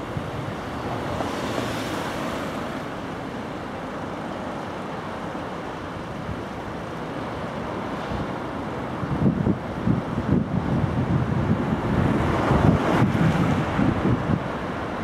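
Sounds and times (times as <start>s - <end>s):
railway station background noise: 0.0s - 1.5s.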